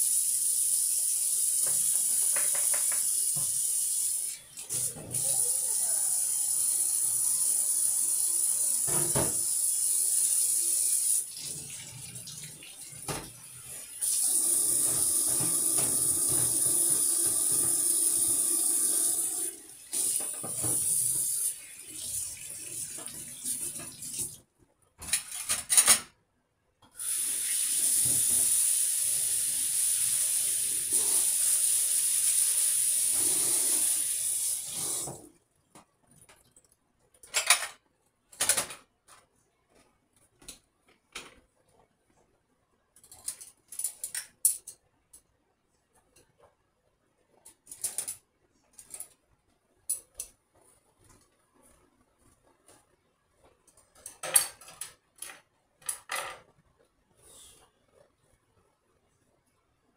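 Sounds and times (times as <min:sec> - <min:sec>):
knocks of items in sink: 0:01.6 - 0:03.5.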